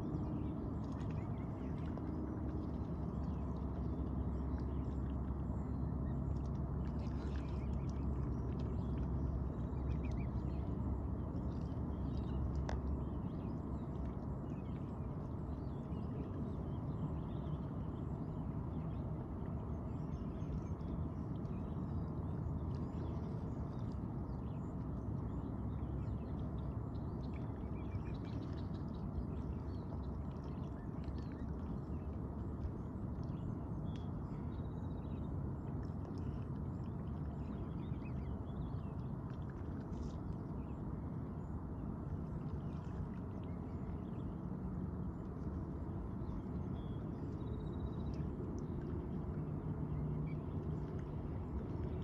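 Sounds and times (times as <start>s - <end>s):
low background rumble: 0.0s - 52.0s.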